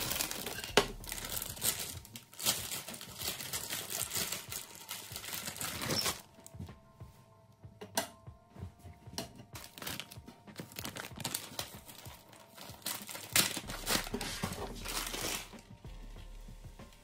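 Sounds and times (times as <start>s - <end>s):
packaging crinkling: 0.0s - 6.3s, 9.6s - 15.6s
packaging tearing: 0.0s - 6.3s, 9.6s - 15.6s.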